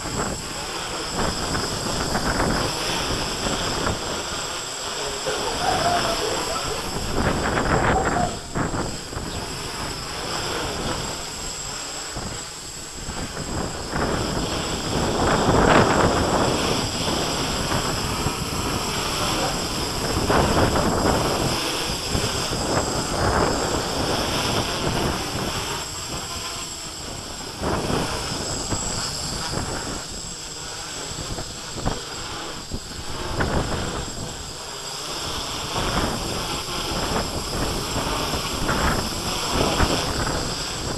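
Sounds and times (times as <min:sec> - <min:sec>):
gusty wind on microphone: 0:00.0 - 0:40.9
quadcopter motors buzzing: 0:00.0 - 0:40.9.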